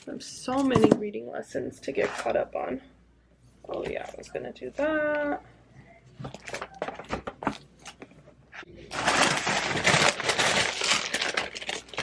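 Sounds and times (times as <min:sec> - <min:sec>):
paper bag crinkling: 0:08.8 - 0:12.0
paper sheets rustling: 0:08.9 - 0:12.0.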